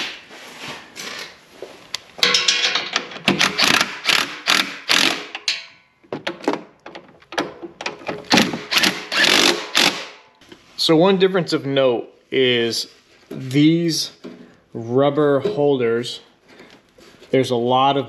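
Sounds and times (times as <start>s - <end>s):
cordless drill spinning: 8.6s - 10.0s.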